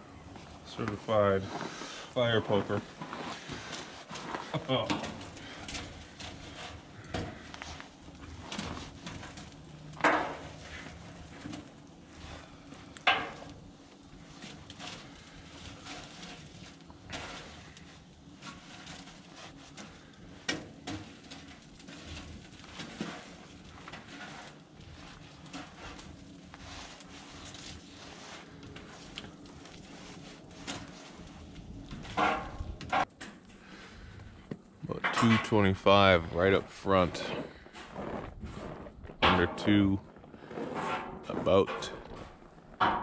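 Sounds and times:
fire poker clanking on metal: 3.7 - 11.9, 12.7 - 13.7, 14.3 - 26.2, 30.6 - 33.4, 34.9 - 35.7, 40.7 - 43.0.

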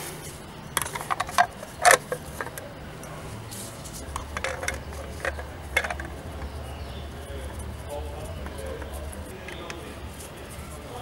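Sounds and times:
wheel cap clicking into place: 0.8 - 3.1, 4.1 - 6.6.

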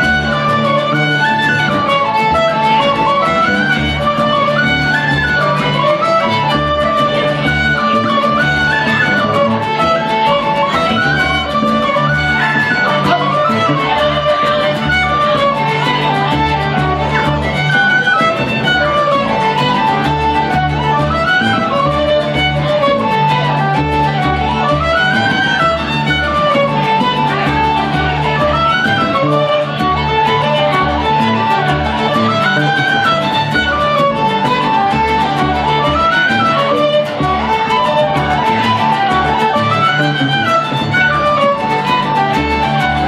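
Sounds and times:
double bass: 0.0 - 43.0
fiddle melody: 0.0 - 43.0
strummed acoustic guitar: 0.0 - 43.0.

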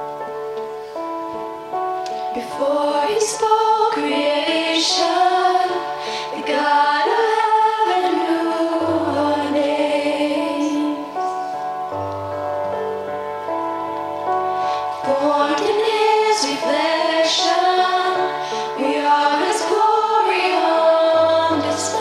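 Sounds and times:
keyboard chords: 0.0 - 22.0
woman singing lead: 2.3 - 11.4, 14.9 - 22.0.

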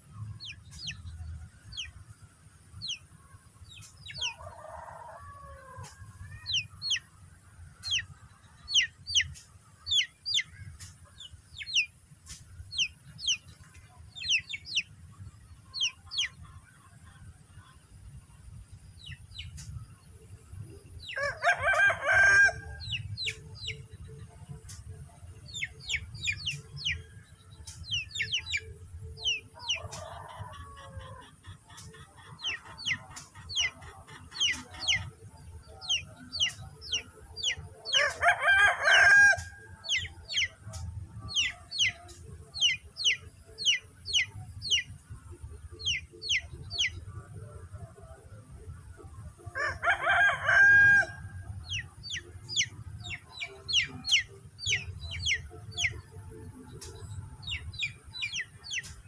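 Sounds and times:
small birds chirping: 0.0 - 49.6, 51.4 - 59.0
rooster crowing: 4.2 - 6.6, 21.1 - 22.9, 29.6 - 31.3, 37.9 - 39.5, 49.5 - 51.4.

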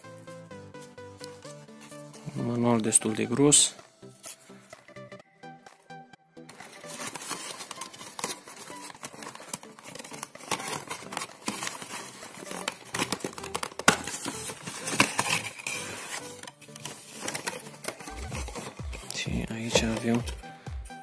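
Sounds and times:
cardboard box rustling and scraping: 6.5 - 20.4
card clicks and knocks: 7.0 - 20.4.

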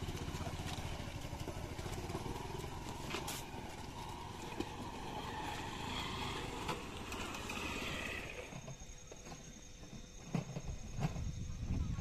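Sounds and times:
road traffic: 0.0 - 8.9.

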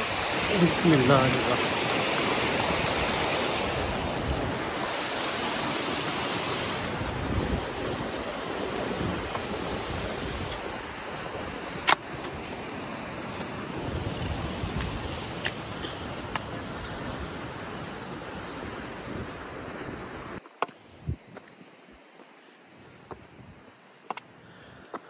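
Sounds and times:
stream rushing over rocks: 0.0 - 19.4.

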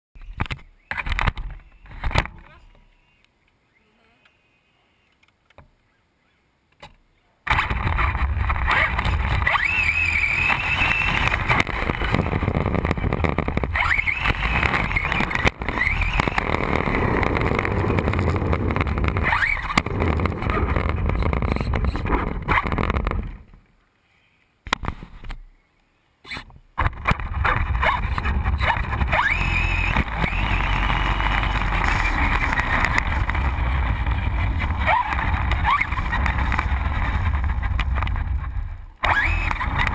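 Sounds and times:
electric motor whining: 7.6 - 23.4, 27.1 - 39.9.

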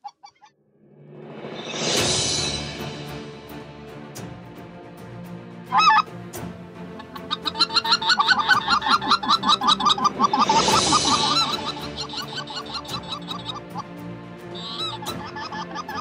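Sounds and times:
goose call blown: 5.7 - 6.1, 7.0 - 13.9, 14.5 - 16.0.

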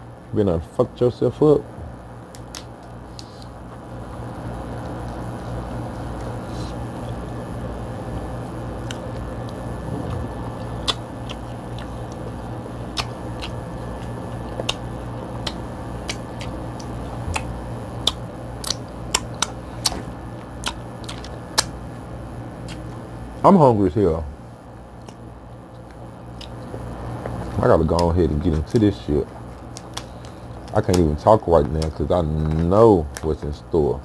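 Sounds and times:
steady low hum: 0.0 - 34.0
crab shell cracking: 2.3 - 3.4, 10.6 - 12.2, 12.9 - 21.8, 25.0 - 33.6.

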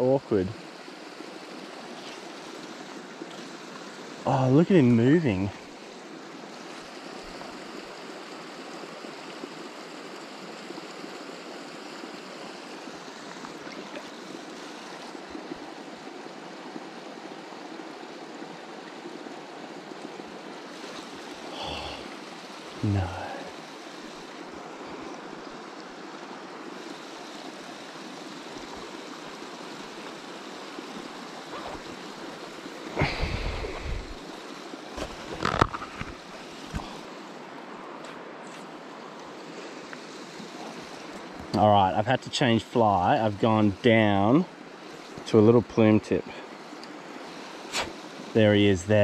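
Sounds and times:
river water running over rocks: 0.0 - 49.0.

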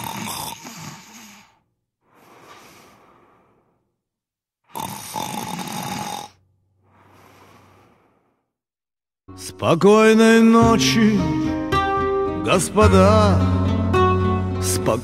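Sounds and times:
man snoring: 0.0 - 3.8, 4.7 - 8.4
soft breath out: 0.6 - 4.0, 6.8 - 8.6.

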